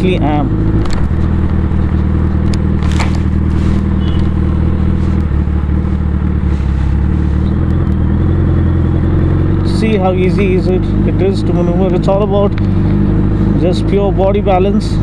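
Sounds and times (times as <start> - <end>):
motorcycle engine at low revs: 0.0 - 15.0
exhaust pops: 0.7 - 8.1.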